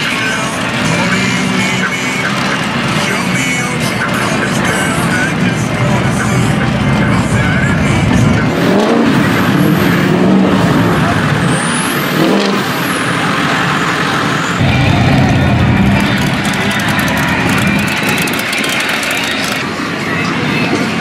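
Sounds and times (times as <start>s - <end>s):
truck engines revving: 0.0s - 21.0s
tyres churning through mud and water: 8.5s - 20.0s.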